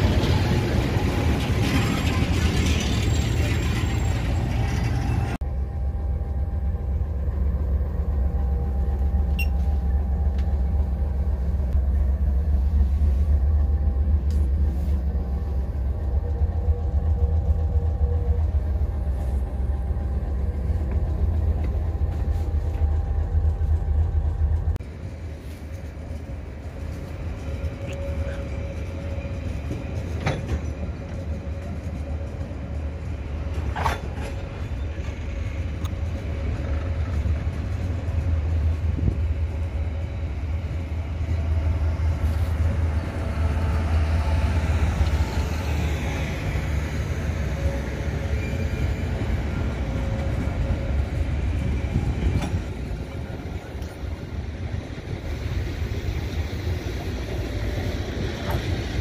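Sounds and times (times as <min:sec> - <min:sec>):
diesel locomotive engine rumbling: 0:00.0 - 0:59.0
held tone: 0:08.2 - 0:10.9.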